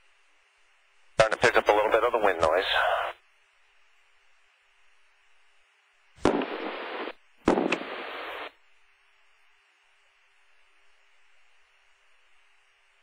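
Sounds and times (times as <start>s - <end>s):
faint steady background hiss: 0.0s - 13.0s
radio hiss bursts with click: 1.2s - 3.2s, 6.2s - 8.6s.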